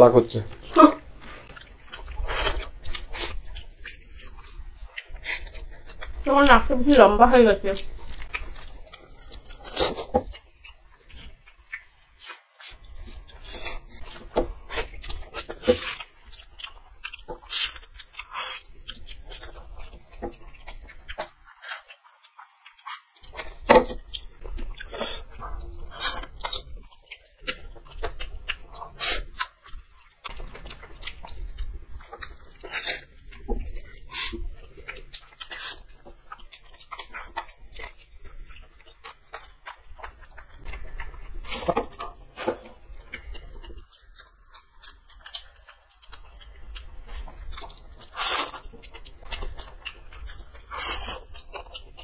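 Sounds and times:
chewing: 0.2 - 52.0
slurping noodles: 24.7 - 26.7, 28.8 - 29.4, 50.6 - 51.3.

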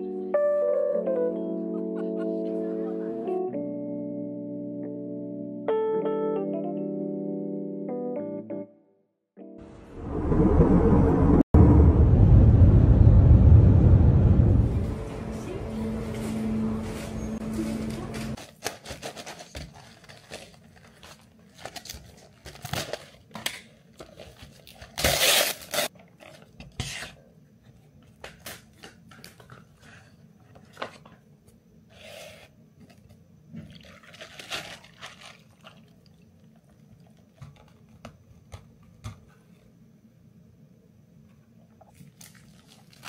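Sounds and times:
music: 0.0 - 9.8, 14.9 - 18.4
objects being handled: 16.2 - 35.8.

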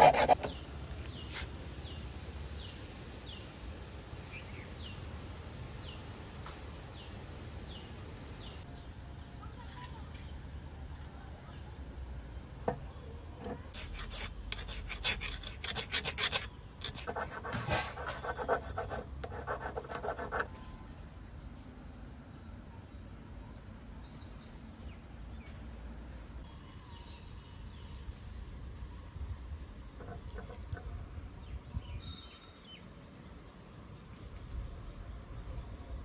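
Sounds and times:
hand file rasping: 0.0 - 0.5, 13.8 - 20.5.

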